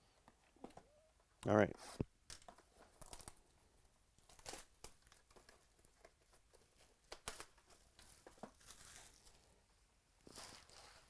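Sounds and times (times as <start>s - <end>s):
plastic wrapper crinkling: 4.2s - 9.6s.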